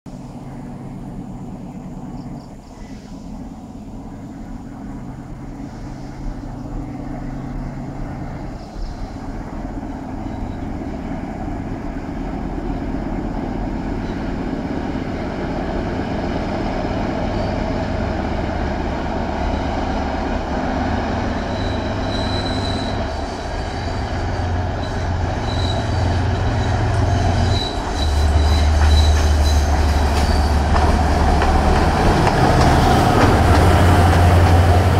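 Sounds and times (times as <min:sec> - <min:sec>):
diesel locomotive engine drone: 0:00.1 - 0:34.9
wheels squealing: 0:20.7 - 0:31.1.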